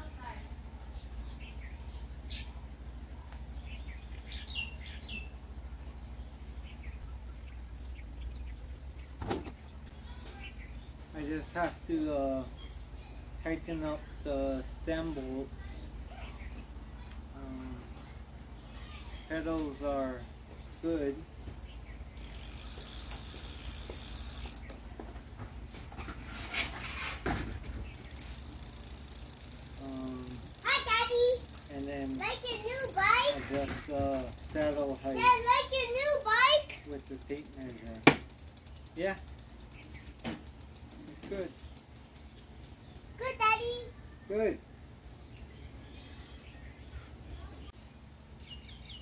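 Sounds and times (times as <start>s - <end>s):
small birds chirping: 0.0s - 25.8s, 27.4s - 49.0s
steady low hum: 0.0s - 49.0s
ratcheting mechanical clicks: 22.2s - 24.7s, 27.5s - 43.2s.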